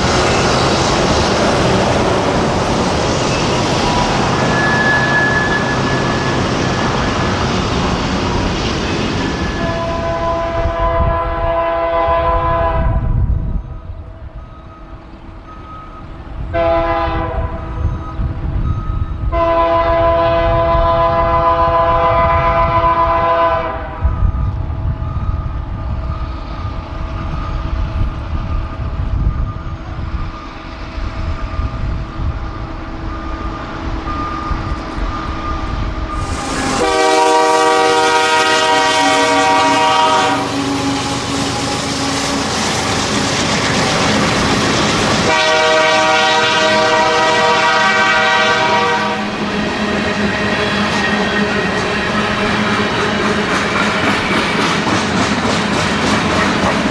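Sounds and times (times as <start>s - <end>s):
diesel locomotive rumble: 0.0s - 56.9s
train rushing past: 0.0s - 56.9s
locomotive air horn blasts: 9.6s - 13.1s, 16.5s - 17.8s, 19.3s - 24.1s, 36.2s - 42.5s, 45.2s - 49.5s.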